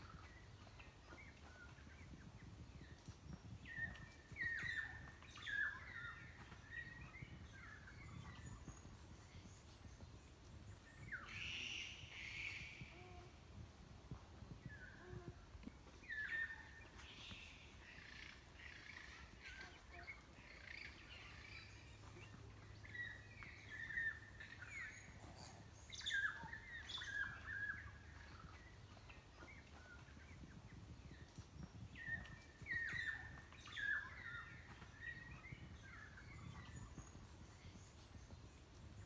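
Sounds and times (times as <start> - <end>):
birds chirping and whistling: 31.1 - 38.4.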